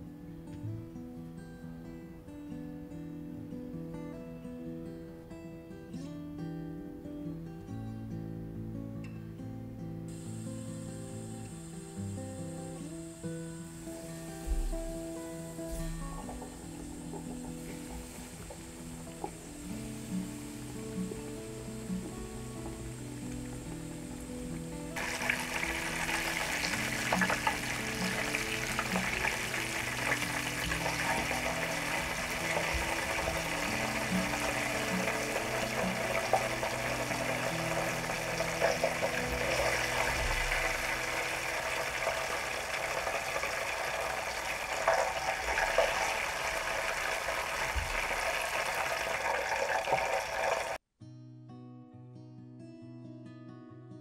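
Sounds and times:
soft background music: 0.1s - 43.9s
chicken deep-frying in oil: 15.7s - 50.8s.

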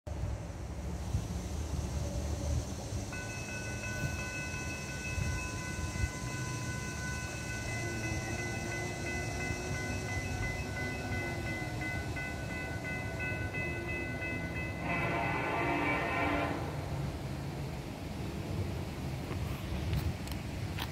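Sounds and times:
low wind rumble: 0.1s - 20.9s
railroad crossing bell ringing: 3.1s - 16.7s
locomotive horn: 14.6s - 17.0s.

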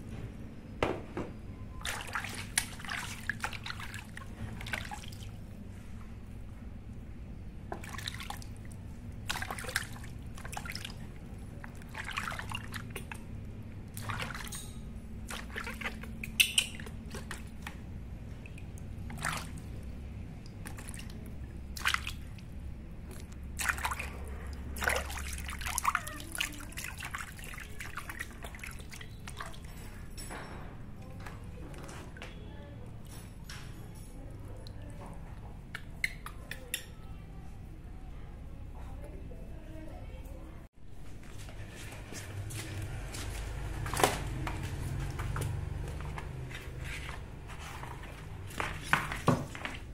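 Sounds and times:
bath water splashing and dripping: 1.8s - 5.4s, 7.7s - 29.9s.

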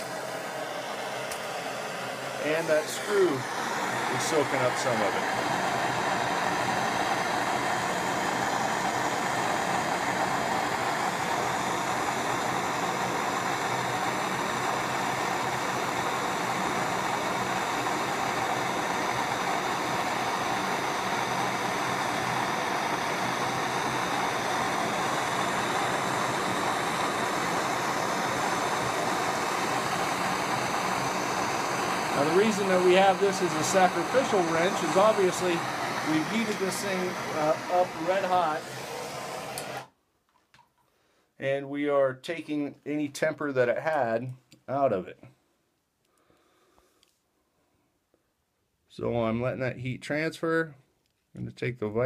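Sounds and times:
propane torch hissing: 0.0s - 40.0s.

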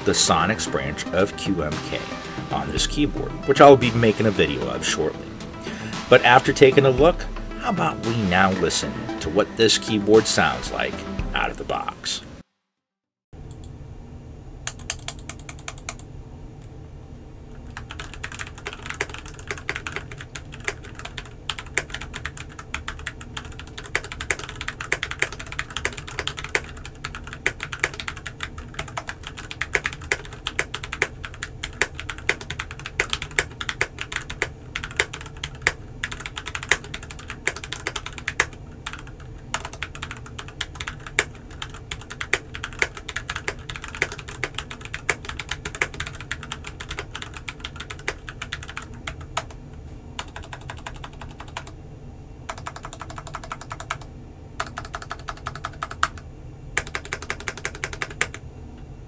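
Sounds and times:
mechanical keyboard typing: 14.7s - 16.0s, 17.7s - 49.5s, 50.2s - 51.7s, 52.5s - 56.2s, 56.8s - 58.4s.

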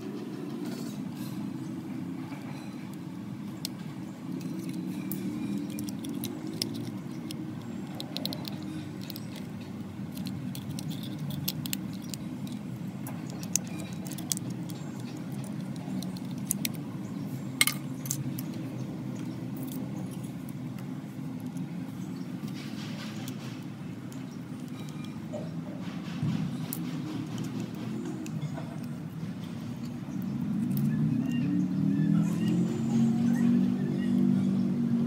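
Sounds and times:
small metallic clicks and clinks: 2.3s - 16.8s, 17.6s - 21.7s, 22.5s - 25.5s.

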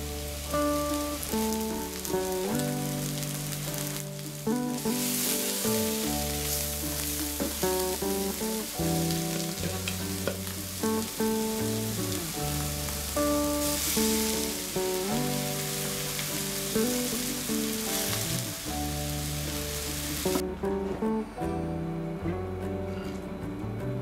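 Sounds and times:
onions sizzling in a pan: 0.0s - 20.4s
background music with plucked notes: 0.0s - 24.0s.

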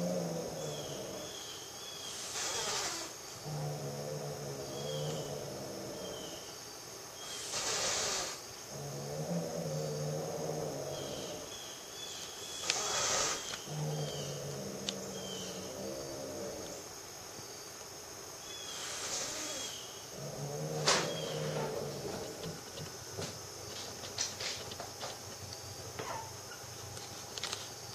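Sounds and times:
cat growling: 0.0s - 1.4s, 2.3s - 6.5s, 7.5s - 11.5s, 12.7s - 16.8s, 19.1s - 22.6s
cat hissing: 2.0s - 6.4s, 7.2s - 8.9s, 12.6s - 16.8s, 18.6s - 22.2s.

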